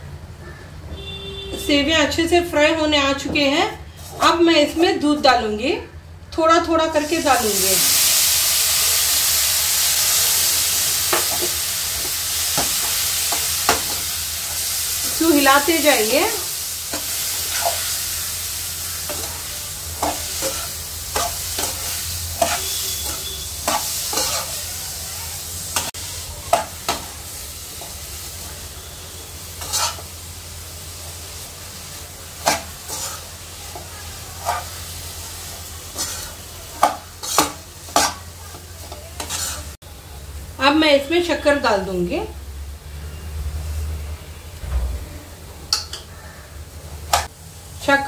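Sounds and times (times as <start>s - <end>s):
steady sizzle: 6.4s - 44.7s, 45.3s - 48.0s
spatula scraping a pan: 18.9s - 24.7s, 29.6s - 30.1s, 32.4s - 35.0s, 35.8s - 39.8s.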